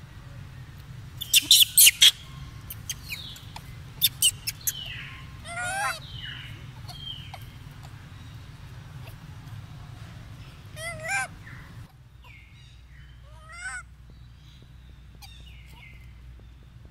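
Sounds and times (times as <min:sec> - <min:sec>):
high falling chirps: 0:01.2 - 0:05.4.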